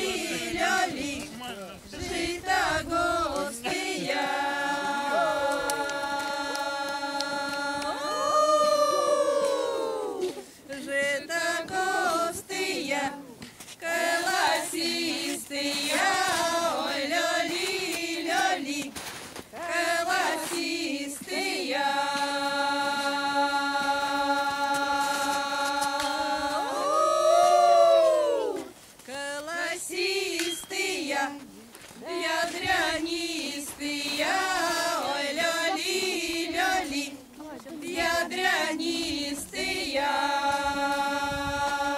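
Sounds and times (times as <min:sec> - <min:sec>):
women's choir singing unaccompanied: 0:00.0 - 0:41.9.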